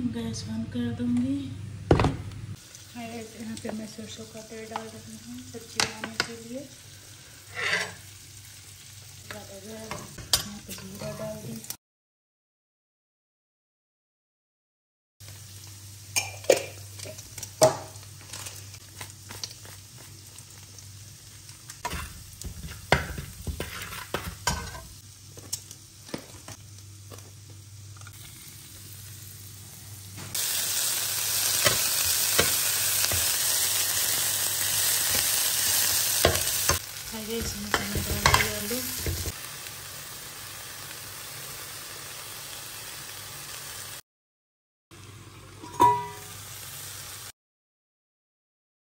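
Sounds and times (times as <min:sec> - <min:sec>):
food sizzling in hot oil: 0:02.5 - 0:11.8, 0:15.2 - 0:44.0, 0:45.0 - 0:47.4
spoon scraping in a steel pan: 0:07.5 - 0:08.0, 0:21.8 - 0:24.9.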